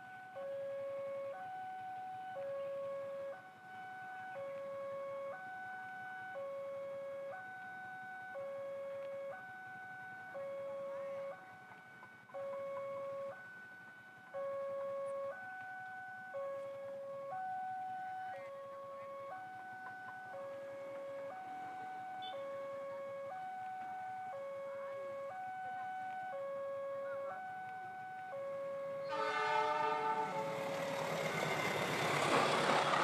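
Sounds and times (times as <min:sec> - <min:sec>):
two-tone level crossing alarm: 0:00.0 - 0:33.0.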